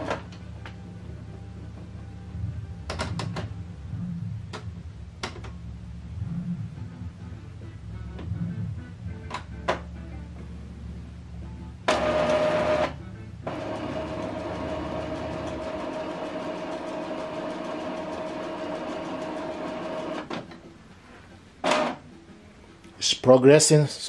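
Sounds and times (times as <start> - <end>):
printer mechanism whirring: 0.0 - 0.4, 11.8 - 20.6, 21.6 - 22.0
printer motor whine: 11.9 - 20.3.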